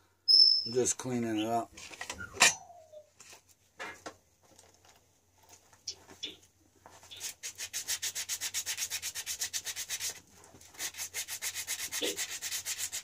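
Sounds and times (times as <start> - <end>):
rapid scrubbing of metal part: 7.2 - 13.0.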